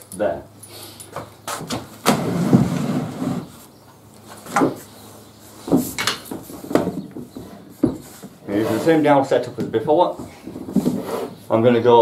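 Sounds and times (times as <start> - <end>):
wood scraping against wood: 2.0 - 4.9, 5.5 - 11.7.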